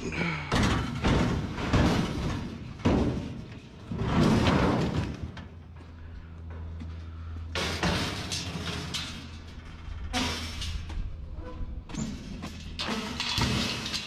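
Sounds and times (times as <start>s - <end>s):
rattling and rustling bursts: 7.5s - 14.0s.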